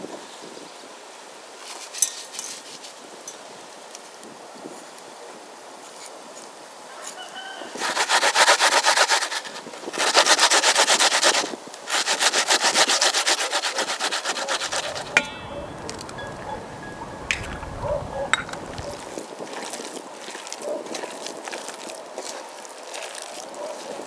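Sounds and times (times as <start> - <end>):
rapid rhythmic scraping: 12.0 - 19.2.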